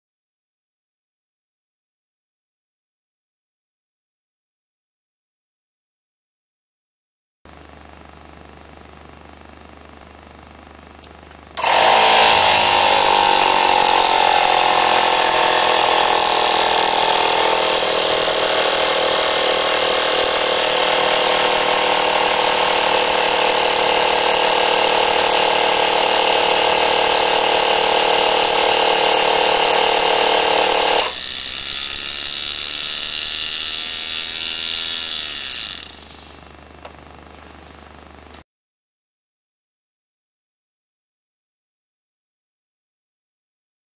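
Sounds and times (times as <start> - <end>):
miniature engine whirring: 11.6 - 36.6
exhaust air hissing: 35.8 - 36.6.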